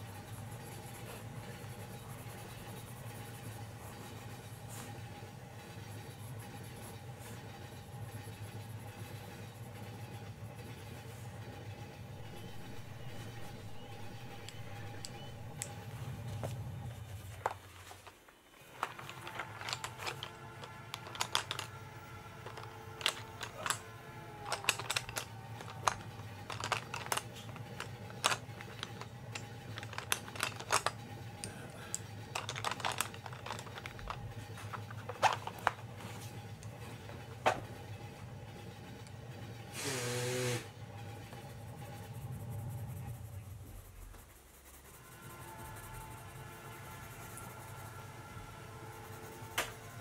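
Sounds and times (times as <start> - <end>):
pencils clicking and tapping: 12.2 - 37.7
low train rumble: 40.7 - 44.1.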